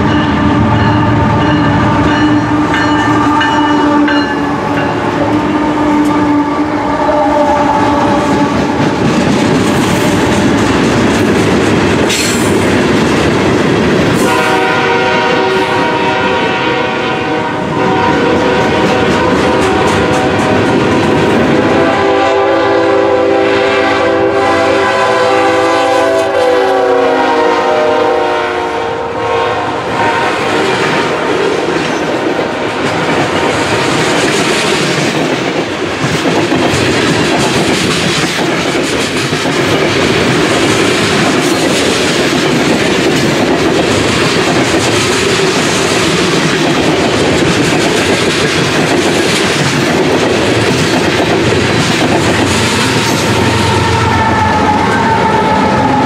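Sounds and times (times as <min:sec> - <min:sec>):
train chord horn: 0:00.0 - 0:08.9, 0:14.2 - 0:31.4, 0:52.6 - 0:56.0
wheels clacking over rail joints: 0:32.8 - 0:53.6.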